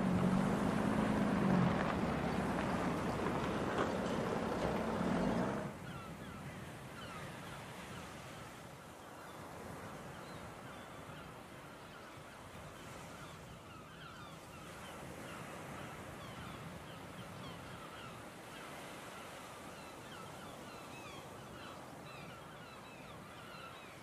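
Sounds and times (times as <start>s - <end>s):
flock of birds calling: 0.0s - 7.2s.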